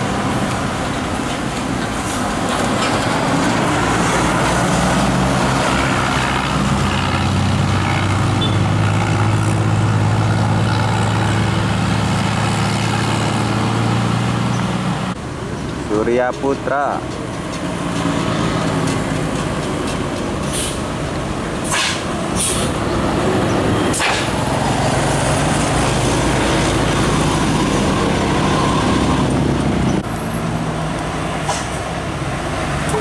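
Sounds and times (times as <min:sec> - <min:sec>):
bus diesel engine running: 0:00.0 - 0:33.0
short air hisses: 0:21.6 - 0:22.8.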